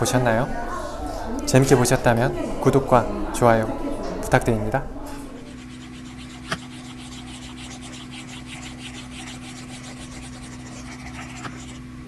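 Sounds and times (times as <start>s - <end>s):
low electrical hum: 0.0s - 12.0s
pastel scratching on paper: 5.5s - 11.9s.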